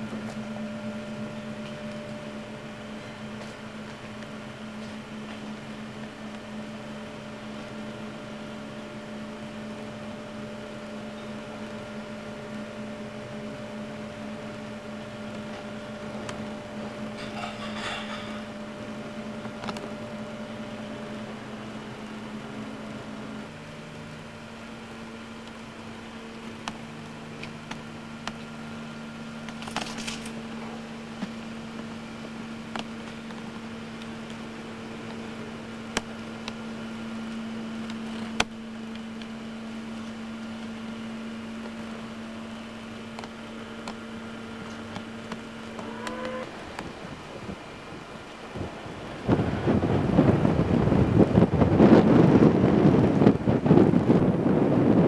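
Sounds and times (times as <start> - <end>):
low second tone: 0.0 - 7.3, 10.4 - 21.3, 44.4 - 47.6
steady machine hum: 0.0 - 55.0.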